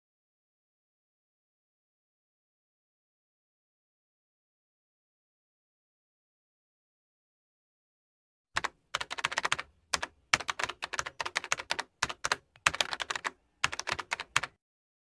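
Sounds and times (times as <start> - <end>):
keyboard typing: 8.6 - 14.6.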